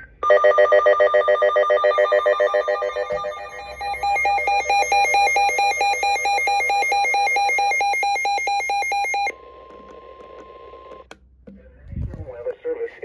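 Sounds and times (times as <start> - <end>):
warbling electronic alarm beeping: 0.2 - 9.4.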